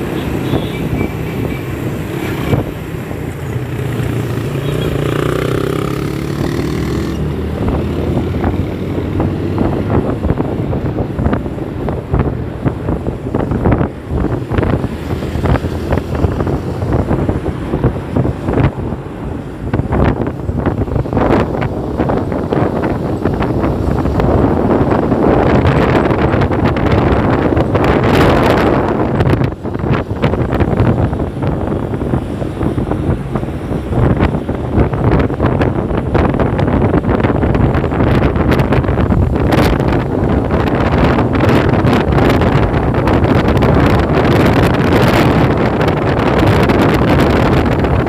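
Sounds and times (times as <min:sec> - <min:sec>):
motorcycle engine: 0:00.0 - 0:11.5
traffic: 0:00.0 - 0:48.0
wind buffeting microphone: 0:00.0 - 0:48.0.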